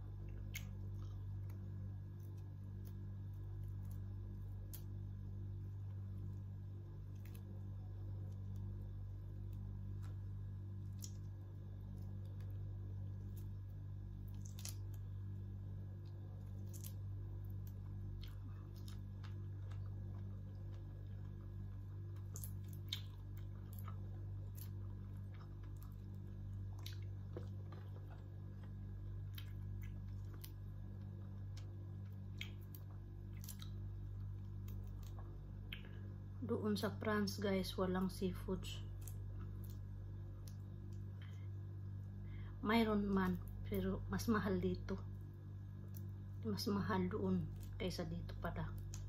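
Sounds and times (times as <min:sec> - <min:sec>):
steady low hum: 0:00.0 - 0:49.0
person chewing: 0:00.2 - 0:04.9, 0:09.5 - 0:13.6, 0:14.2 - 0:15.1, 0:16.0 - 0:36.1
mouth clicks and smacks: 0:22.2 - 0:23.4, 0:32.3 - 0:33.8.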